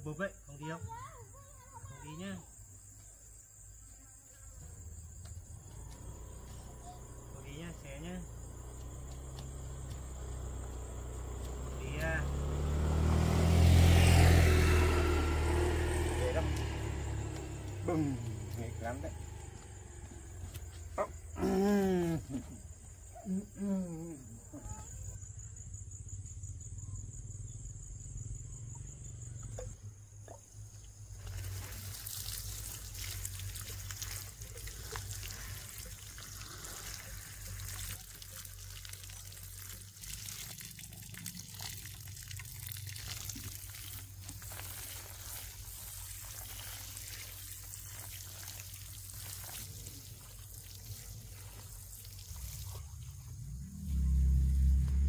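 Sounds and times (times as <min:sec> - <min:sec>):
insects chirping: 0:00.0 - 0:55.0
water running and splashing: 0:04.6 - 0:23.1, 0:31.0 - 0:55.0
steady crackle: 0:31.2 - 0:55.0
loud low rumble: 0:53.4 - 0:55.0.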